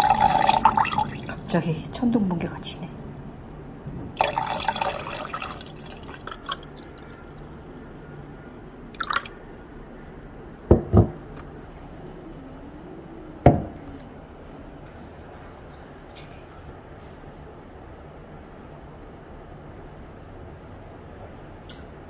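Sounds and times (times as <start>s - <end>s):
water poured into a glass: 0.0s - 1.5s, 4.2s - 7.9s, 9.0s - 9.4s.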